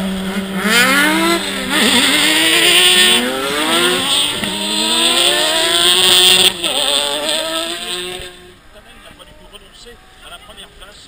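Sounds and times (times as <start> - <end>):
racing car engines revving: 0.0 - 8.6.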